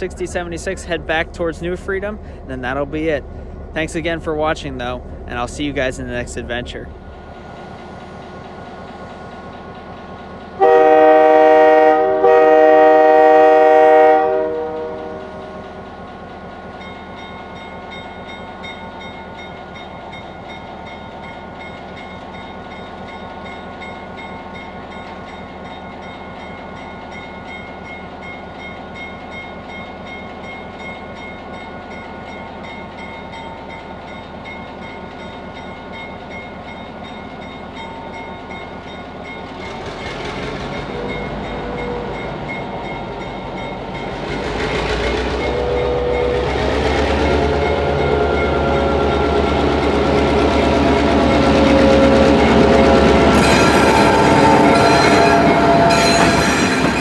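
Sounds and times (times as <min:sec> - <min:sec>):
locomotive horn blasts: 0:10.6 - 0:15.3, 0:40.9 - 0:42.3, 0:45.3 - 0:57.0.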